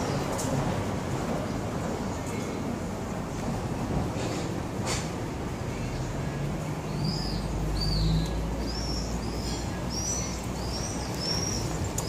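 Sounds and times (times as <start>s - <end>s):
small bird chirping: 6.9s - 12.0s.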